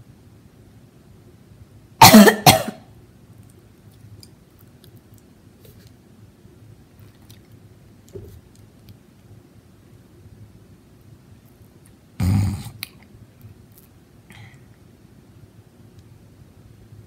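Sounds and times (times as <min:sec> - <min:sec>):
woman coughing: 0:02.0 - 0:02.9.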